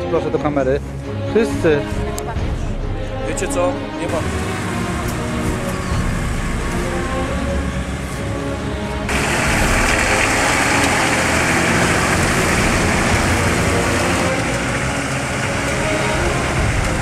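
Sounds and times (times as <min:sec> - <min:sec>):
off-road vehicle engine running: 0:04.1 - 0:17.0
water splashing around wheels: 0:04.2 - 0:17.0.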